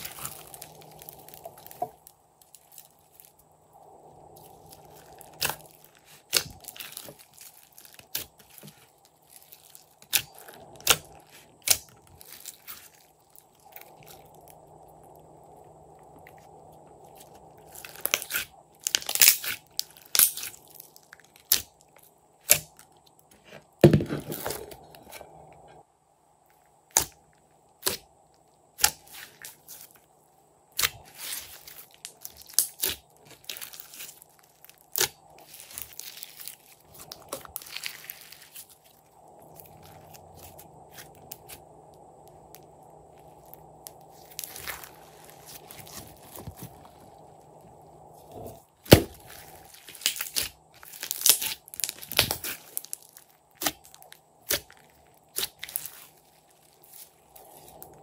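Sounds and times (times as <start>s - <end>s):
sticky crackling pops: 48.8s - 56.1s.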